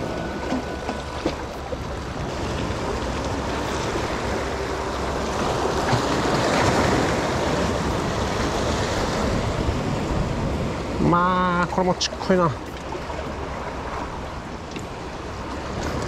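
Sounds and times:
wind on microphone: 0:00.0 - 0:11.2.

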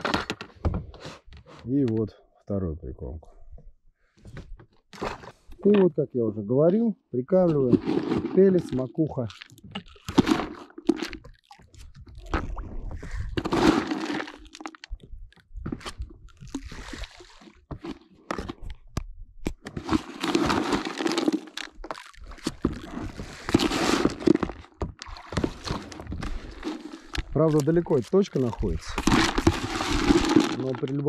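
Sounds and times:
dry pellets crunching and rattling: 0:13.3 - 0:15.1, 0:19.8 - 0:31.0.

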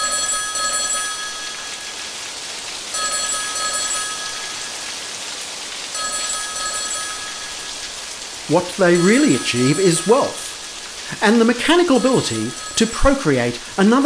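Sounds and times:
rain-like hiss: 0:00.0 - 0:14.0
bell-like ringing: 0:08.8 - 0:10.6, 0:11.5 - 0:13.6.

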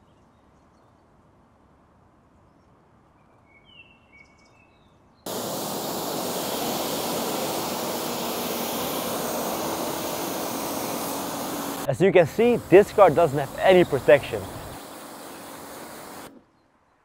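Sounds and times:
pressure washer spray hissing: 0:05.3 - 0:16.4.

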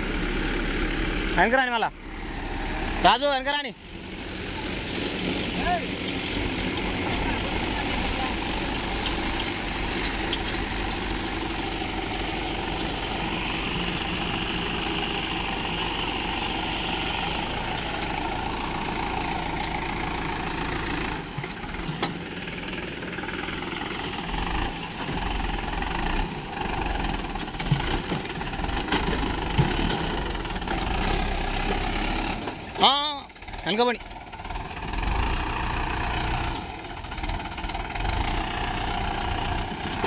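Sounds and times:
diesel tractor engine under load: 0:00.0 - 0:40.0.

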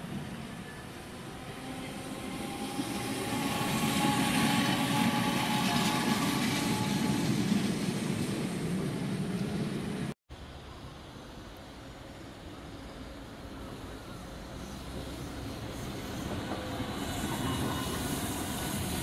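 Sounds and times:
tram wheels rumbling on rails: 0:00.0 - 0:10.1, 0:12.0 - 0:19.0
tram motor whine: 0:00.1 - 0:07.9.

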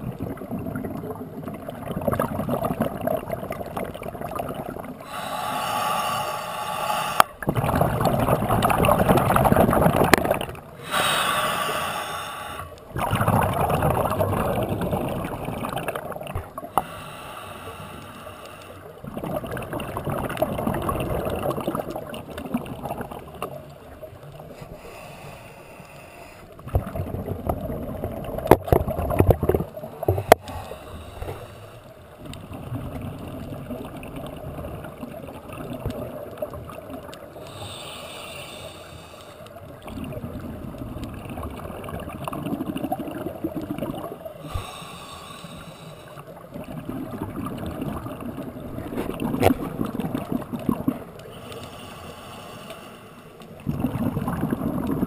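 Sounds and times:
exhaled bubbles rumbling: 0:00.0 - 0:06.2, 0:06.8 - 0:11.9, 0:12.5 - 0:16.8, 0:18.9 - 0:24.6, 0:26.6 - 0:37.6, 0:39.5 - 0:44.8, 0:46.2 - 0:51.4, 0:53.4 - 0:55.0
regulator inhale hiss: 0:05.0 - 0:07.4, 0:10.8 - 0:12.9, 0:16.7 - 0:19.0, 0:24.5 - 0:26.6, 0:30.1 - 0:32.0, 0:37.4 - 0:39.6, 0:44.4 - 0:46.3, 0:51.2 - 0:53.4.

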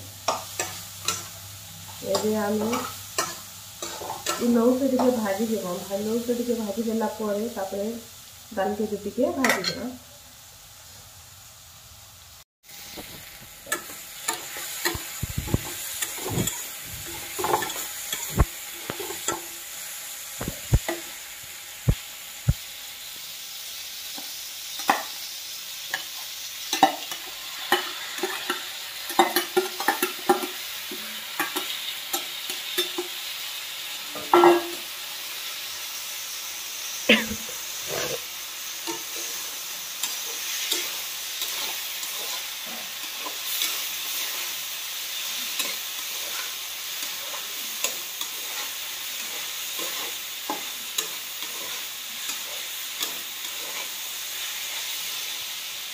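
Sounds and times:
potatoes sizzling in pan: 0:00.0 - 0:55.9
spatula scraping and knocking pan: 0:01.9 - 0:05.2, 0:13.0 - 0:19.5, 0:45.4 - 0:54.8.

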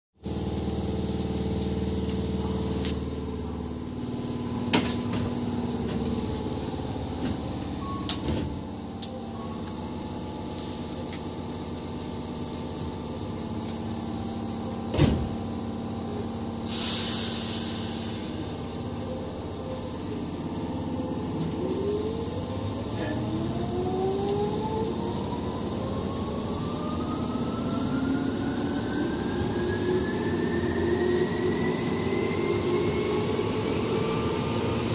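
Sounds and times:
traction motor whine rising: 0:00.3 - 0:34.9
train equipment hum: 0:00.3 - 0:34.9
air hiss: 0:16.6 - 0:18.8.

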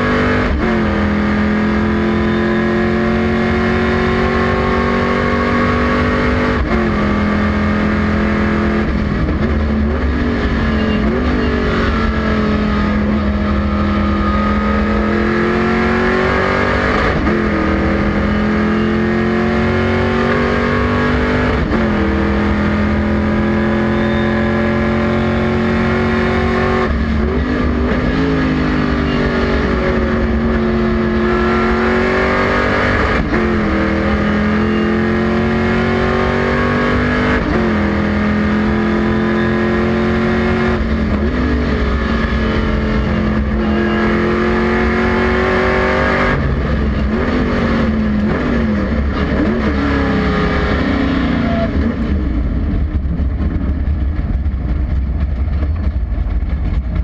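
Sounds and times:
race car engine at full throttle: 0:00.0 - 0:57.0.

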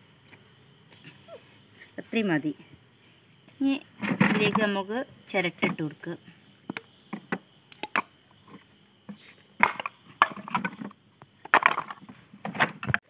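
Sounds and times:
coconut shells clattering on stone: 0:09.6 - 0:12.0.

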